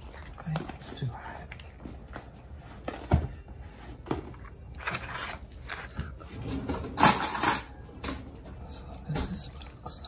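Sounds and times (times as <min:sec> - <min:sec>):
stiff paper crinkling: 0:04.4 - 0:06.2.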